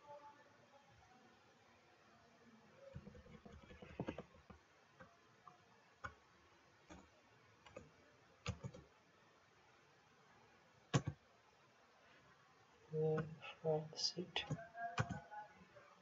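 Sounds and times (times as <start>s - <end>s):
computer keyboard keys clicking: 3.0s - 5.1s, 6.9s - 8.8s, 10.9s - 11.2s, 14.4s - 15.2s.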